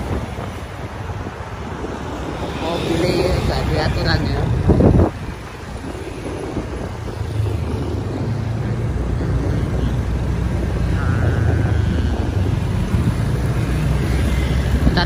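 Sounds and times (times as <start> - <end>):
road and traffic noise: 0.0 - 15.0
motorcycle engine running: 4.5 - 15.0.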